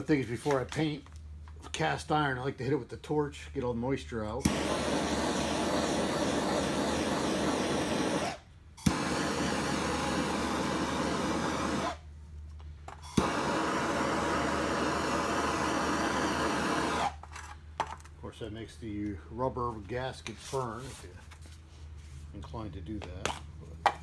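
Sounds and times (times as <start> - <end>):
torch ignition click: 4.4 - 12.0, 13.0 - 17.2
gas torch flame burning: 4.4 - 12.1, 12.9 - 17.2.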